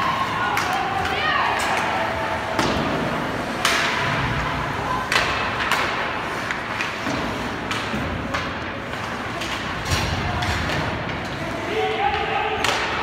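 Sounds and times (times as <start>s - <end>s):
rink background noise: 0.0s - 13.0s.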